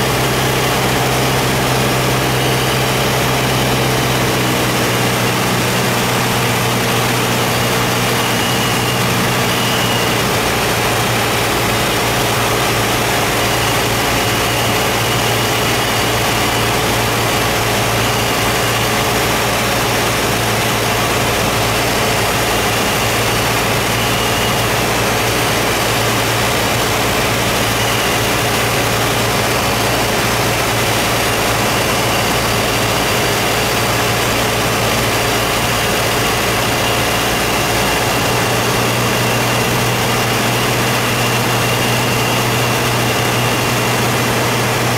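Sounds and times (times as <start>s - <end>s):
aircraft engines droning: 0.0s - 44.9s.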